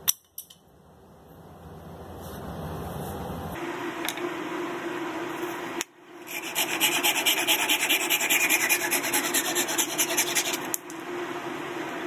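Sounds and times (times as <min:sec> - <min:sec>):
hand saw cutting wood: 0:06.3 - 0:10.7.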